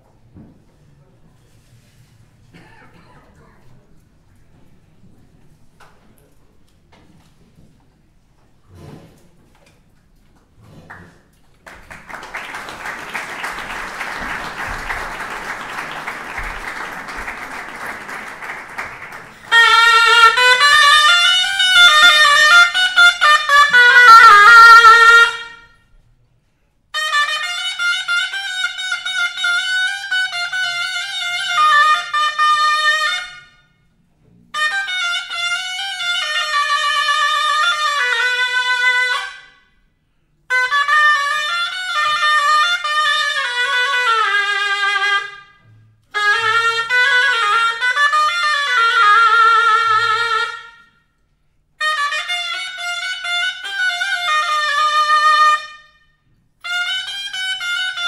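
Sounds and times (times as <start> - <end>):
audience applause: 11.6 - 19.6
shawm melody: 11.7 - 25.8, 27.0 - 39.7, 40.5 - 51.0, 51.8 - 58.0.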